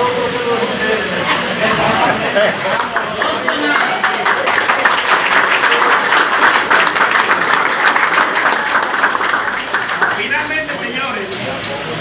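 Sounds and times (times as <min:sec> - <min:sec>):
audience applauding: 0:02.6 - 0:11.1.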